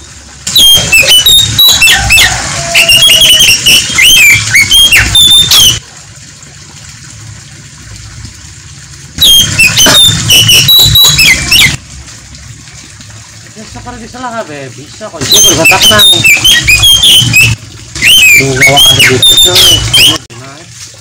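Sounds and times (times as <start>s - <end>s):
bird whistles and chirps: 0.6s - 5.8s, 9.2s - 11.8s, 15.3s - 20.2s.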